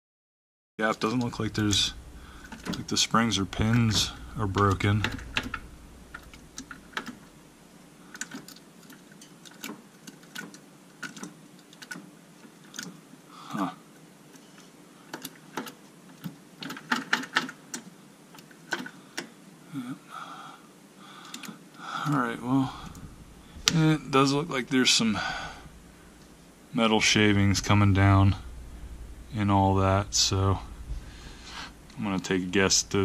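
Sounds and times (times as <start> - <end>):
metallic clicks and clacks: 3.6 - 7.2.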